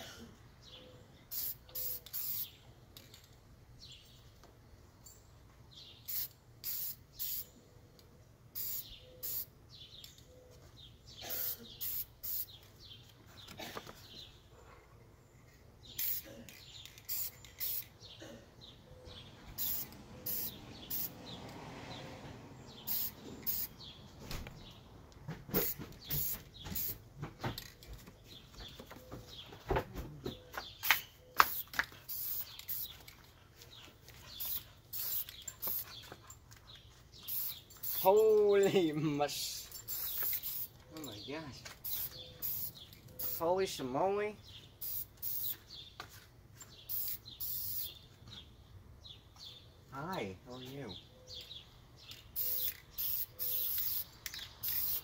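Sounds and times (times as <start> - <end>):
spray can hissing bursts: 1.3 - 2.6, 6.0 - 7.5, 8.5 - 9.5, 11.2 - 12.6, 15.9 - 18.0, 19.5 - 21.3, 22.7 - 23.9, 25.5 - 27.0, 30.8 - 33.0, 34.3 - 35.9, 37.2 - 38.3, 39.8 - 40.8, 41.8 - 43.5, 44.8 - 45.8, 46.8 - 48.0, 52.3 - 55.0.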